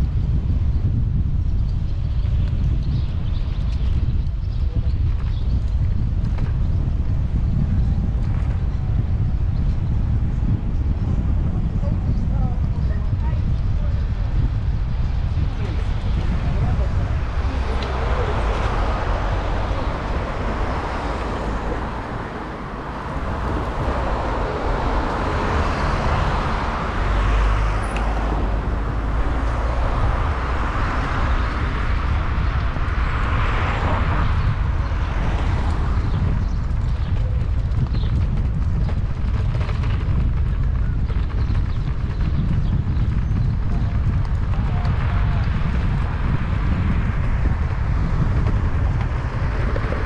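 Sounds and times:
low rumble: 0:00.0 - 0:50.0
cars passing: 0:13.0 - 0:39.4, 0:42.0 - 0:50.0.

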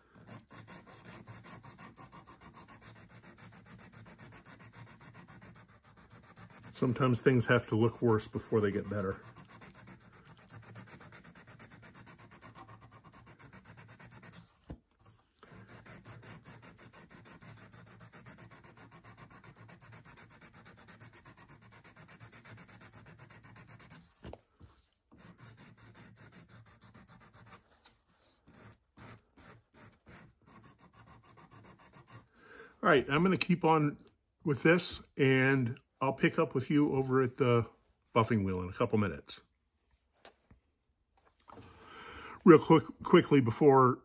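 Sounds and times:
sandpaper rubbing on brass: 0:00.0 - 0:14.6, 0:15.4 - 0:24.2, 0:25.1 - 0:32.3.

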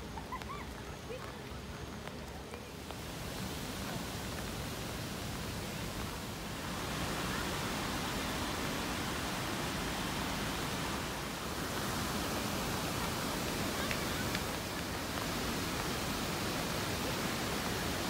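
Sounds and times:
faint voices talking: 0:00.0 - 0:04.7, 0:12.5 - 0:18.0
steady rushing noise: 0:01.6 - 0:18.0.

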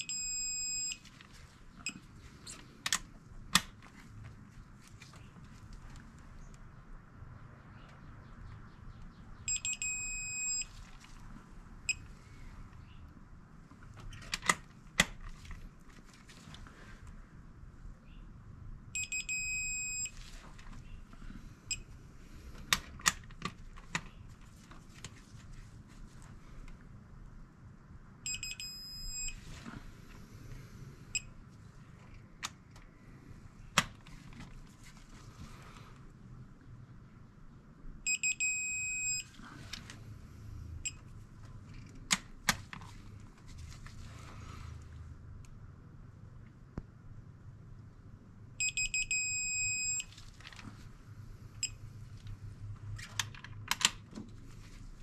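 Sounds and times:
torque wrench beeping: 0:09.5 - 0:10.7.

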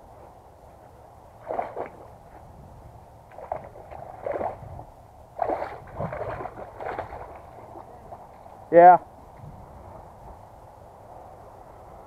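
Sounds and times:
fish splashing and thrashing: 0:01.4 - 0:02.1, 0:03.3 - 0:04.7, 0:05.4 - 0:08.3.

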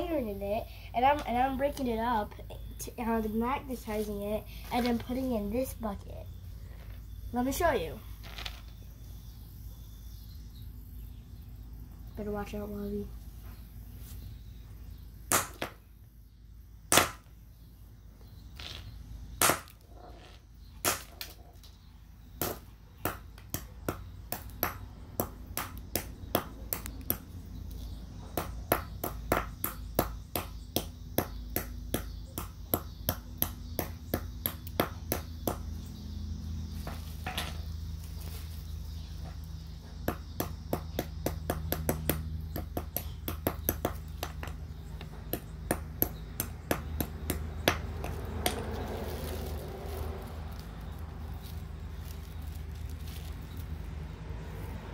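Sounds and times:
hammer striking rock: 0:15.3 - 0:15.8, 0:16.9 - 0:17.3, 0:19.4 - 0:19.7.

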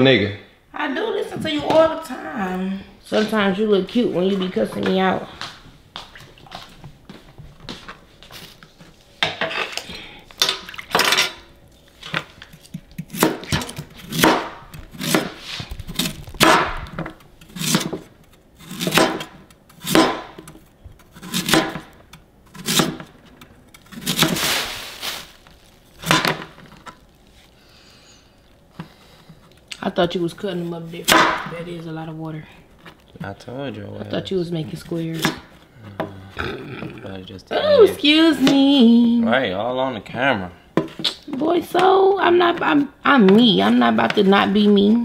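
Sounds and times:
cleaver chopping on cutting board: 0:12.7 - 0:15.4, 0:16.0 - 0:20.5, 0:21.2 - 0:21.9, 0:22.5 - 0:23.1, 0:31.0 - 0:31.5.

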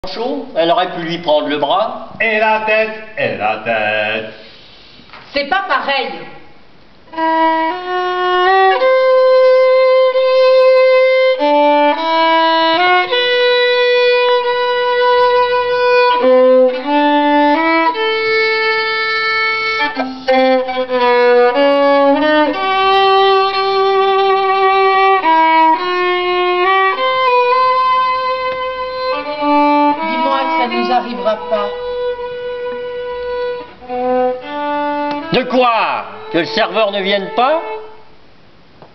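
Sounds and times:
solo violin slow tune: 0:07.1 - 0:38.1.

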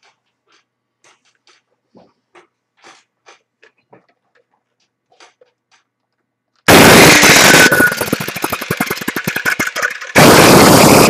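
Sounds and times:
wall chaser running: 0:06.7 - 0:11.0.

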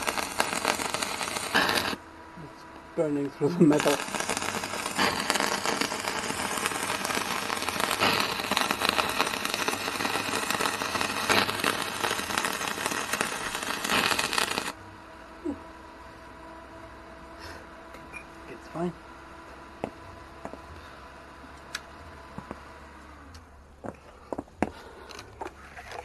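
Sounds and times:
welding arc crackling: 0:00.0 - 0:02.1, 0:03.0 - 0:14.8.

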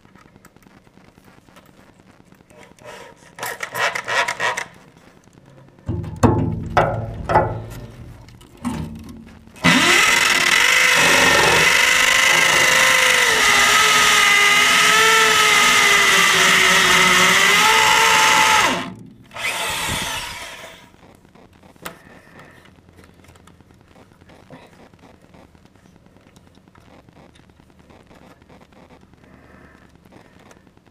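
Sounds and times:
drill knocks: 0:09.6 - 0:20.7
hammer drill boring into concrete: 0:09.6 - 0:20.9.

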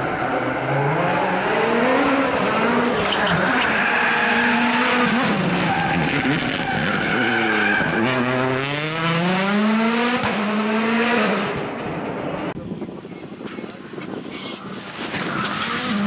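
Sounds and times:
rally car engine accelerating: 0:04.1 - 0:11.8.

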